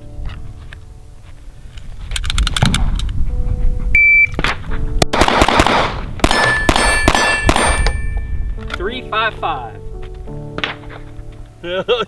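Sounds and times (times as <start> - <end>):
shot timer beep: 4.0 - 4.4
pistol shots: 4.4 - 8.2
steel targets ringing: 6.2 - 8.5.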